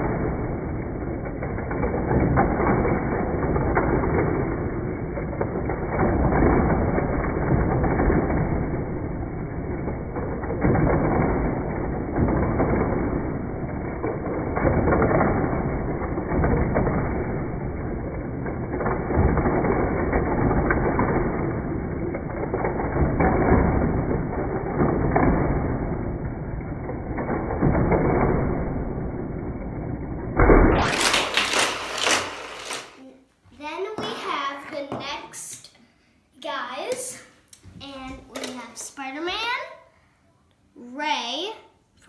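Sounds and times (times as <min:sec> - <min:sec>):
toy cars whirring rattle: 0:30.7 - 0:33.0.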